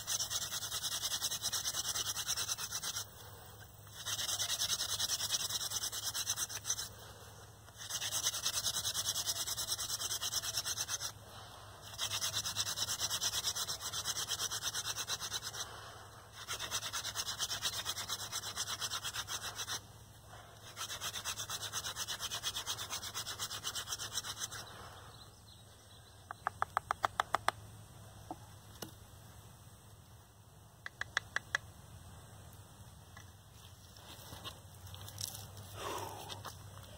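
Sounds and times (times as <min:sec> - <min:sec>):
sharp taps: 0:26.3 - 0:27.6, 0:30.8 - 0:31.7.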